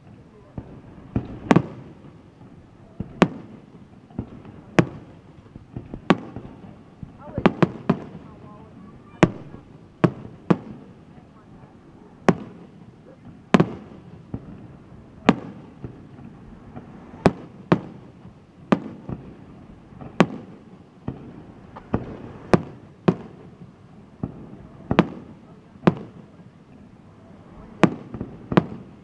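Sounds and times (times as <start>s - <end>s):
firework shells bursting: 12.3s - 25.2s.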